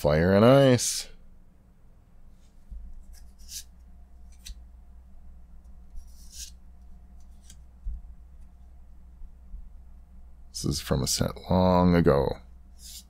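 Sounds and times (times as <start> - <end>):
low steady hum: 0.0 - 13.0
cards sliding papery swishes: 2.3 - 4.6, 5.9 - 6.6, 7.2 - 7.6, 12.8 - 13.0.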